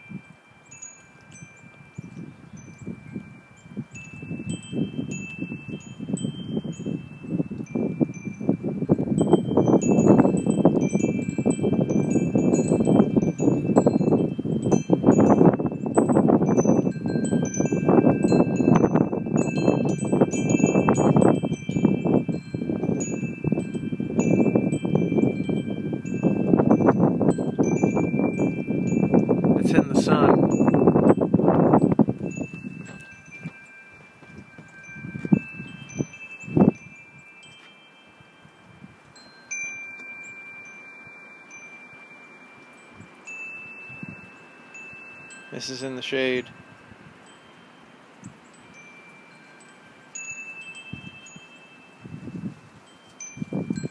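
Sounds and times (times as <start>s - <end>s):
wind chimes ringing: 0.0s - 53.9s
footsteps on wooden deck: 32.1s - 35.4s.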